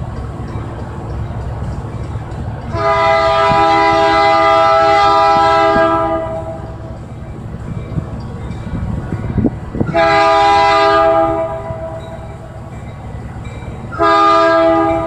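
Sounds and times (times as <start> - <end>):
locomotive air horn blast: 2.7 - 6.8, 9.9 - 12.1, 13.9 - 15.0.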